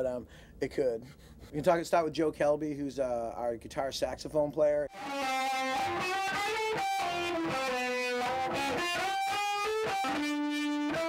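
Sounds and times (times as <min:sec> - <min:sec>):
distorted electric guitar melody: 0:04.9 - 0:11.0.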